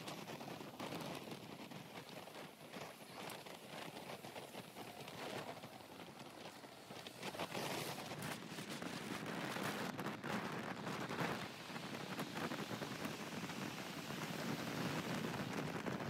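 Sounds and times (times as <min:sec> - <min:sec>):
road noise: 0:00.0 - 0:16.0
wind buffeting microphone: 0:00.0 - 0:16.0.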